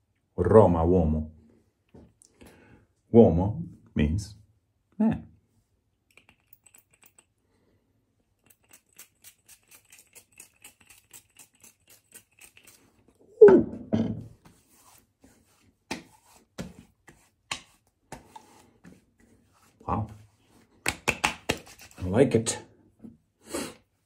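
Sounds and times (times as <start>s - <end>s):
hands patting a face: 20.1s - 22.0s.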